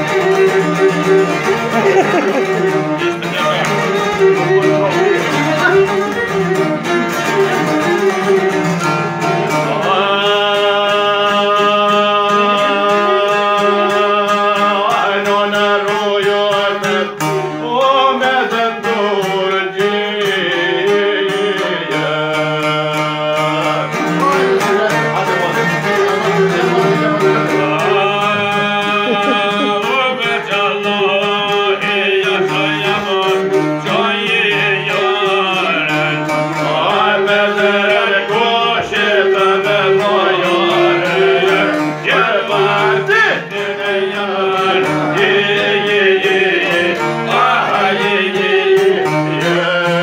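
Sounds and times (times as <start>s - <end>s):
man singing: 0.0s - 50.0s
plucked lutes: 0.0s - 50.0s
violin: 0.0s - 50.0s.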